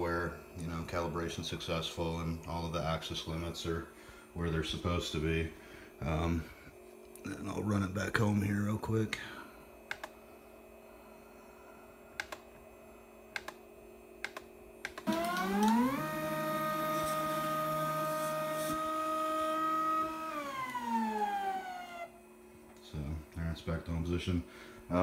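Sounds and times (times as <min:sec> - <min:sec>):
faint steady hum: 0:00.0 - 0:25.0
sharp clicks: 0:09.9 - 0:10.2, 0:12.2 - 0:12.4, 0:13.4 - 0:13.6, 0:14.2 - 0:15.8
stepper motors whining: 0:15.0 - 0:22.2.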